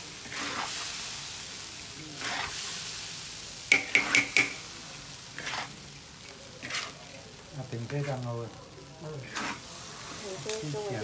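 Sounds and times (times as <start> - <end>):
spatula sweeping in a wok: 0.0 - 5.8, 6.6 - 7.1, 9.2 - 11.0
food sizzling in a wok: 0.0 - 11.0
utensil clinking on a wok: 3.7 - 4.6.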